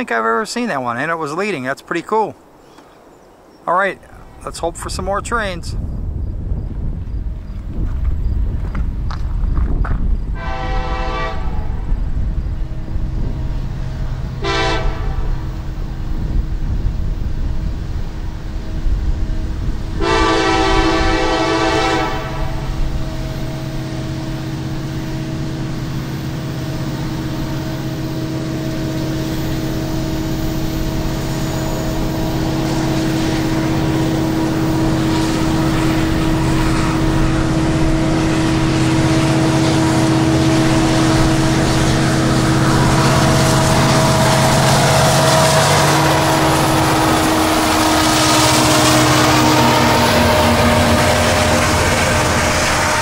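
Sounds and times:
locomotive engine hum: 0:00.0 - 0:53.0
locomotive air horn blasts: 0:10.4 - 0:11.8, 0:14.4 - 0:15.4, 0:20.0 - 0:23.1, 0:31.8 - 0:53.0.

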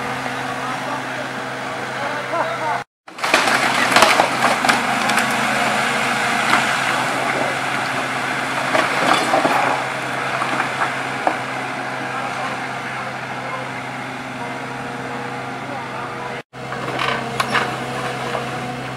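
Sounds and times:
excavator engine running: 0:00.0 - 0:18.9
wood debris cracking and clattering: 0:03.1 - 0:11.6, 0:16.7 - 0:18.5.

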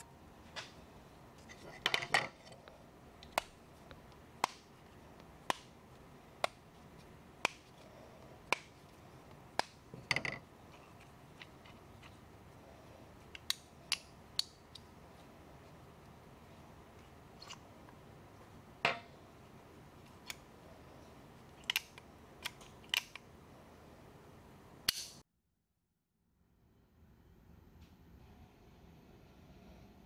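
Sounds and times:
metal clicks: 0:21.6 - 0:23.3.

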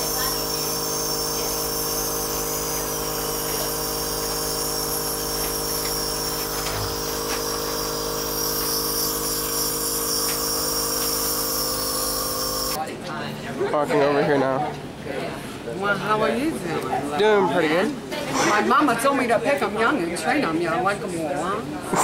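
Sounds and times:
nebulizer compressor humming: 0:00.0 - 0:12.8.

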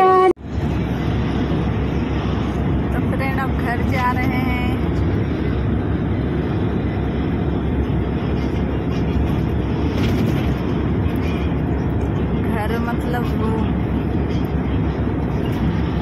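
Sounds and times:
bus engine and tyre drone: 0:00.0 - 0:16.0.

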